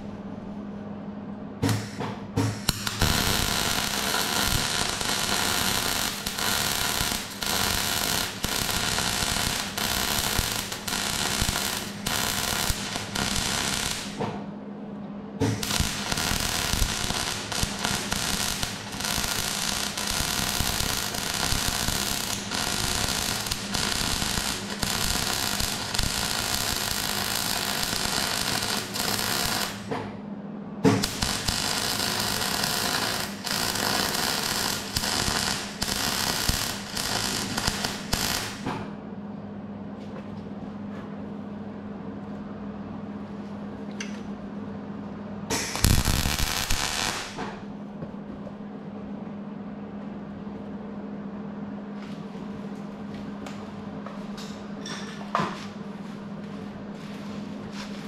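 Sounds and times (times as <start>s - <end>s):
welding arc crackling: 2.5s - 14.3s, 15.4s - 29.9s, 31.0s - 38.7s, 45.5s - 47.4s.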